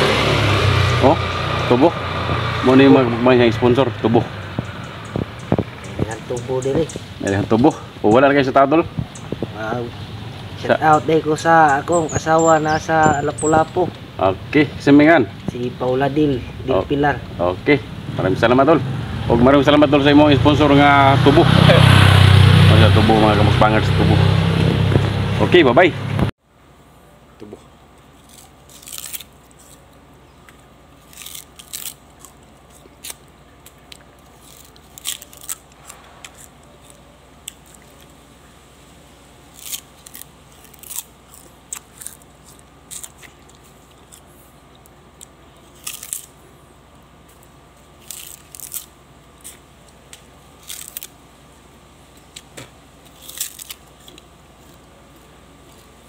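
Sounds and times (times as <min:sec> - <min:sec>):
sugarcane crunching and cracking: 0:28.0 - 0:38.2, 0:39.4 - 0:46.5, 0:47.2 - 0:51.2, 0:52.1 - 0:56.0.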